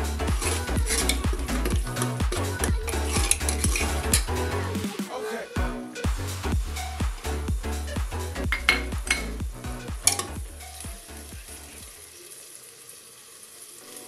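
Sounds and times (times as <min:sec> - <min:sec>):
electronic background music: 0:00.0 - 0:12.0
ladle stirring and knocking pot: 0:00.4 - 0:04.4, 0:08.4 - 0:09.4, 0:10.0 - 0:11.6
masala sizzling in a pot: 0:10.2 - 0:14.0.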